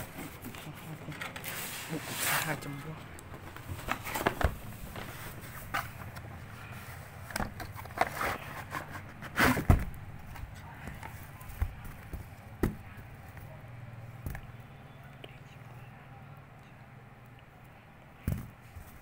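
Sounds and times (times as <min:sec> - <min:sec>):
cardboard box and cable handling: 0:00.0 - 0:13.6.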